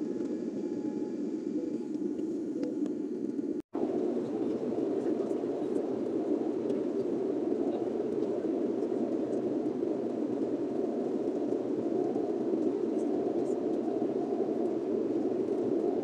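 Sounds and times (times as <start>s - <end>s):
jet airliner cabin hum: 0.0s - 16.0s.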